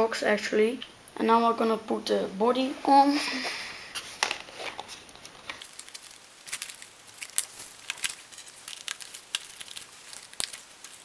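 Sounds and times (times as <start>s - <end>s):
cardboard rustling: 3.9s - 11.0s.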